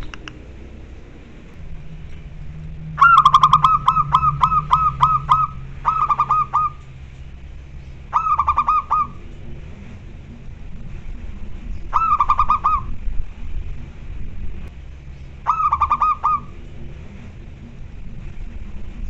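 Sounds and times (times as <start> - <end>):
dove cooing: 3.0 - 6.9, 8.1 - 9.3, 11.9 - 13.0, 15.4 - 16.6.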